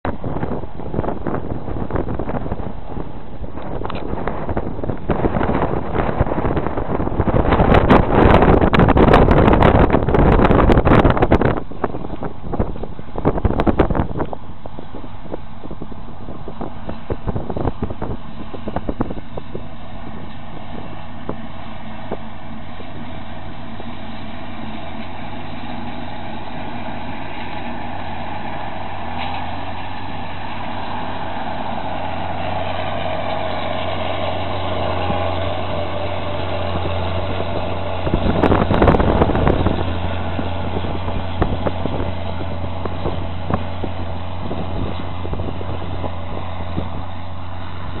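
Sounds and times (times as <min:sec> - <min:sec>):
diesel engine droning: 0:00.0 - 0:48.0
loud rushing noise: 0:00.1 - 0:48.0.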